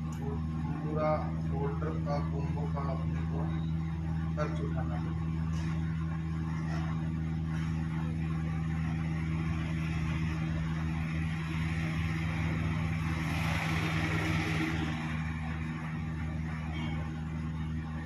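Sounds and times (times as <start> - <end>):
electrical equipment hum: 0.0 - 18.0.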